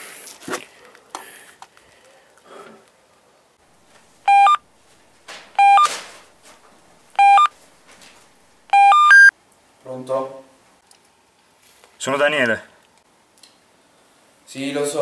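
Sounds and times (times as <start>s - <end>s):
faint clicks and rustles: 3.7s - 8.6s
phone beeping ringtone: 4.3s - 4.6s, 5.6s - 6.0s, 7.2s - 7.5s, 8.7s - 9.3s.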